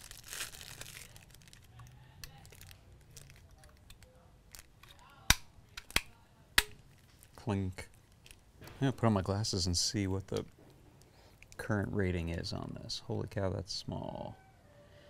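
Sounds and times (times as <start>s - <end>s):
plastic bag crinkling: 0.0s - 5.3s.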